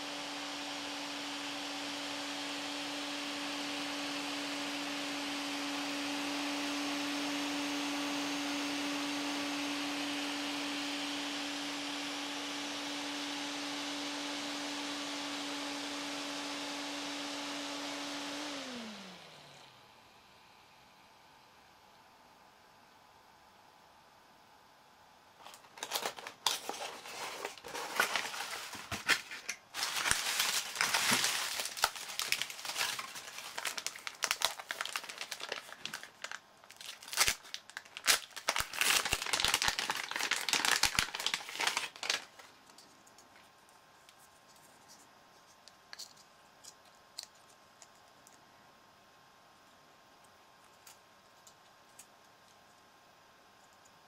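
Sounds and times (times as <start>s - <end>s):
plastic packaging crinkling: 25.4s - 43.4s.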